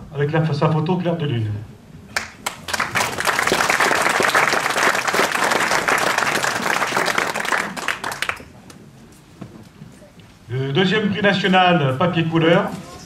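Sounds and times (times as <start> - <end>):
audience applauding: 2.2 - 8.6.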